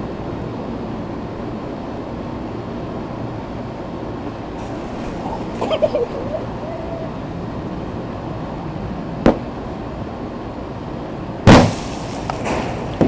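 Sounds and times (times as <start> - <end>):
firework sharp crack: 11.4 - 13.0
loud firework bang: 11.4 - 13.0
small firework pops: 11.5 - 13.0.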